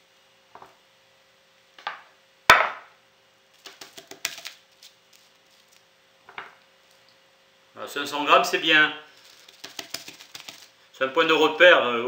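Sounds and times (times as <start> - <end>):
spoon knocking and clicking: 9.5 - 10.6.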